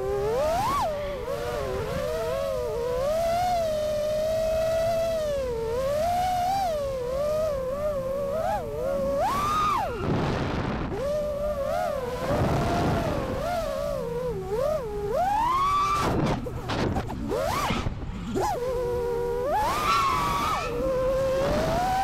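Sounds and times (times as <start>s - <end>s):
drone motors whining: 0.0s - 22.0s.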